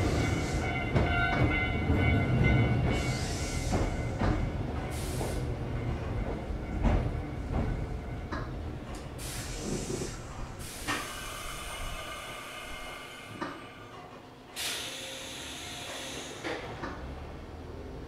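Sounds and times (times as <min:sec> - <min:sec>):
electric train rumble stopping: 0:00.0 - 0:18.0
compressed air hiss: 0:09.2 - 0:13.6, 0:14.6 - 0:16.6.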